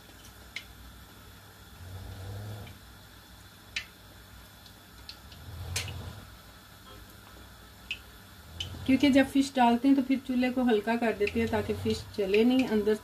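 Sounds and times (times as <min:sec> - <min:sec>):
fish frying in hot oil: 0:00.0 - 0:01.8, 0:02.6 - 0:13.0.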